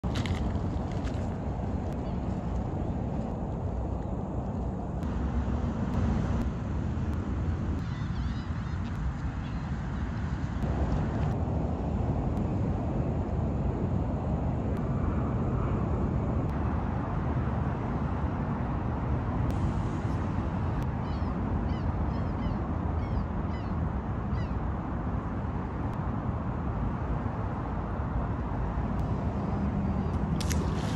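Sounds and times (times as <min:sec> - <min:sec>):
low outdoor rumble: 0:00.0 - 0:30.9.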